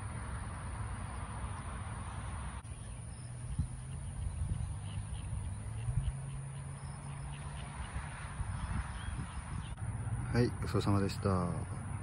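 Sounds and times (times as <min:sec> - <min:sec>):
wind rumble on microphone: 0:01.5 - 0:10.3.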